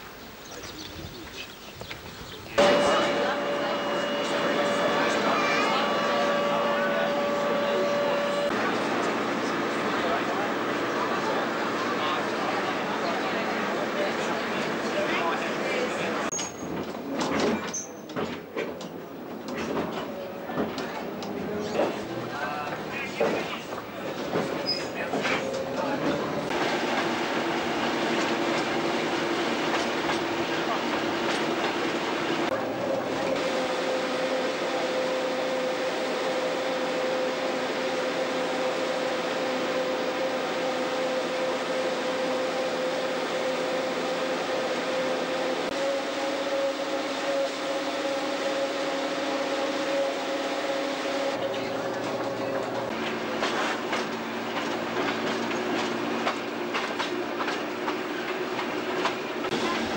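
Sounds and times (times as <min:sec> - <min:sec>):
railcar running noise: 0:00.0 - 0:59.9
wheels clicking over rail joints: 0:16.3 - 0:33.4, 0:51.4 - 0:59.9.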